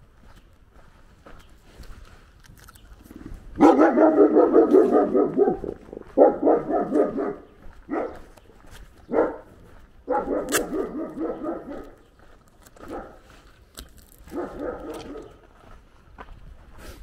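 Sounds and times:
dog barking: 3.6s - 8.4s, 9.0s - 12.1s, 12.8s - 13.3s, 14.2s - 15.4s.

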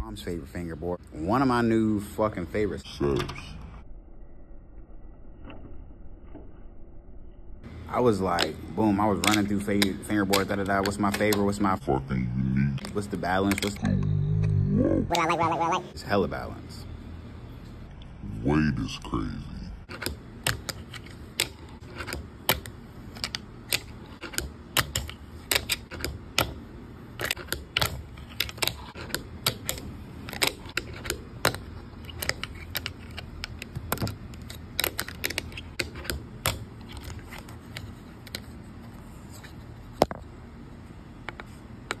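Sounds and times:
low steady rumble: 6.8s - 21.9s.

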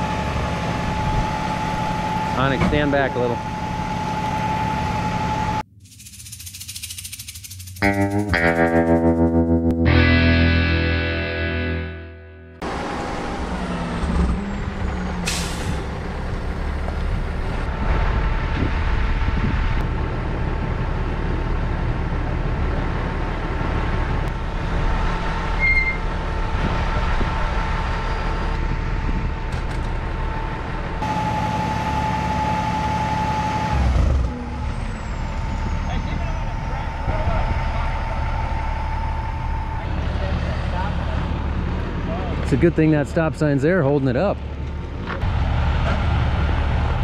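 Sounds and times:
diesel engine running: 0.0s - 5.8s, 8.0s - 47.0s
steady whine: 34.5s - 41.5s.

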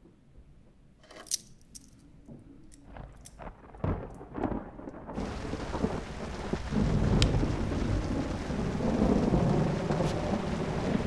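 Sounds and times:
thunder rumbling: 2.3s - 11.0s
heavy rain hiss: 5.2s - 11.0s.

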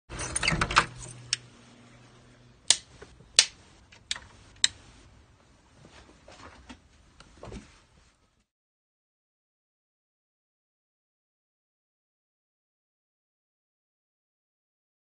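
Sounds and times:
low hum: 0.1s - 5.7s
sharp clicks: 2.7s - 4.8s.

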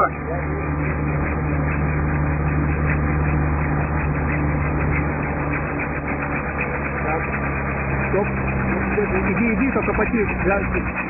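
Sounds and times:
vehicle engine droning: 0.0s - 11.0s.

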